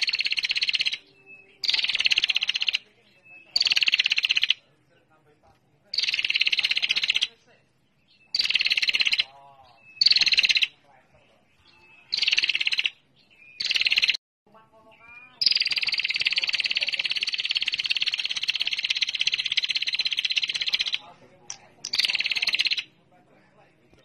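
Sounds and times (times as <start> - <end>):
bird buzzy trill: 0.0 - 2.8, 3.5 - 4.6, 5.9 - 7.3, 8.2 - 9.3, 9.9 - 10.8, 12.0 - 13.0, 13.6 - 14.2, 15.4 - 21.0, 21.9 - 22.9.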